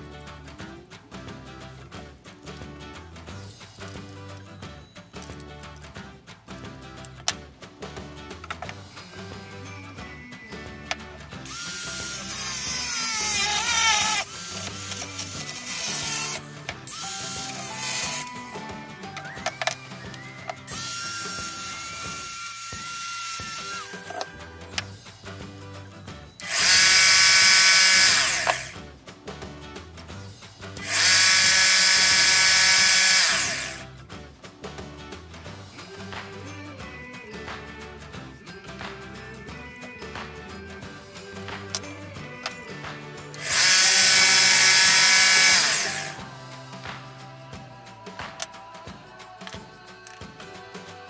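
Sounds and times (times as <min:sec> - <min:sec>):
background music: 0:00.0 - 0:51.0
disc grinder whining: 0:11.5 - 0:18.5, 0:20.4 - 0:24.4, 0:26.4 - 0:28.8, 0:30.8 - 0:33.8, 0:43.4 - 0:46.2.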